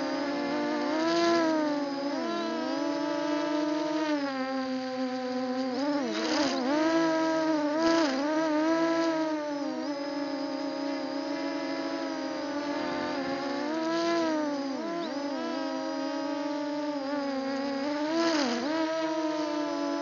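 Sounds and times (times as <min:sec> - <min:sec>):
drone propellers whining: 0:08.2 - 0:17.7.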